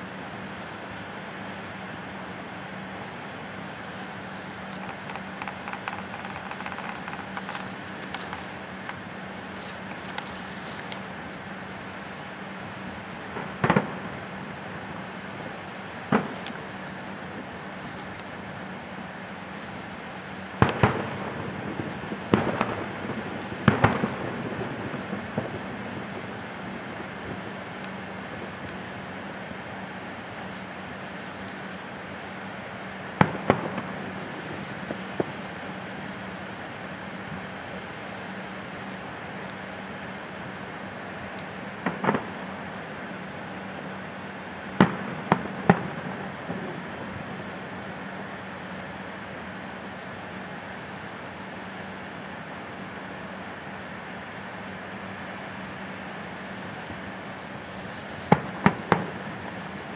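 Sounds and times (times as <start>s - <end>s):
background hiss: 0.0s - 59.9s
firework shells bursting: 2.8s - 15.3s, 16.0s - 50.0s, 55.5s - 59.9s.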